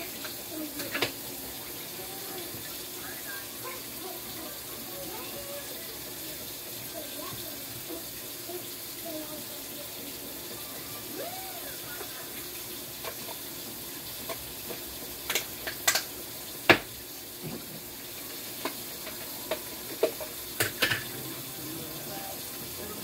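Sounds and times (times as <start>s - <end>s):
steady hiss: 0.0s - 23.0s
kitchenware clinking and knocking: 18.6s - 21.2s.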